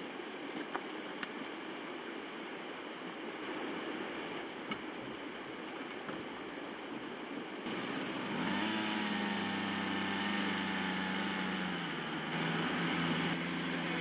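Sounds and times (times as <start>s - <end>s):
small petrol engine running: 7.7s - 14.0s.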